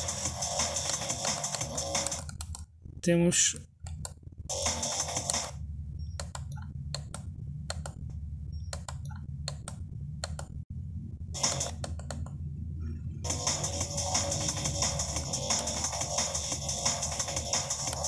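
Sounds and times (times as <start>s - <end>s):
low bass music from car stereo: 4.6s - 18.0s.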